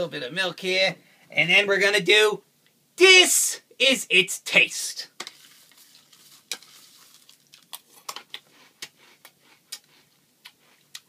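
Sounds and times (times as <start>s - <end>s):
spoon in cereal bowl: 5.2s - 9.9s
crunchy chewing: 5.5s - 11.0s.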